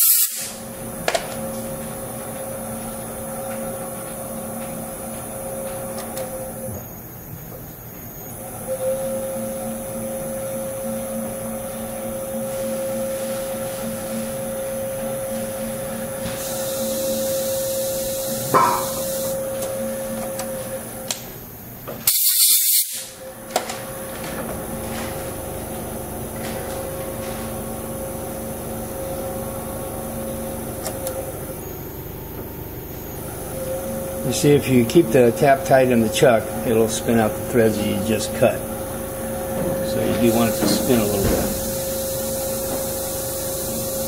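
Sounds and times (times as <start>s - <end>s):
compressed air hiss: 0.0s - 0.6s, 16.4s - 19.4s, 22.1s - 23.1s, 40.2s - 44.0s
machine humming: 0.0s - 22.0s, 23.0s - 44.0s.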